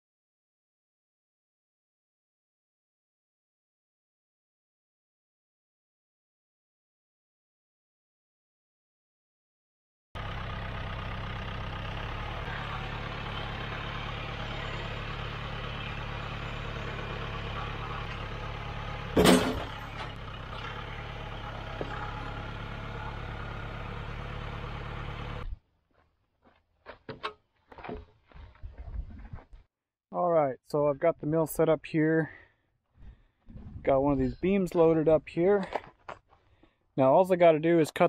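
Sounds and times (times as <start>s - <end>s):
tractor engine running: 10.2s - 25.6s
loud thump: 19.2s - 20.0s.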